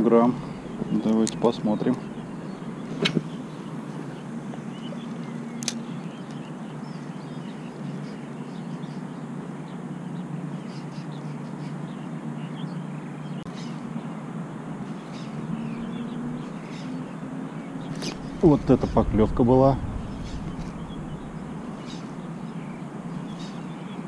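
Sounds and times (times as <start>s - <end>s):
low outdoor rumble: 0.0s - 5.1s, 17.4s - 24.0s
faint bird calls: 0.0s - 24.0s.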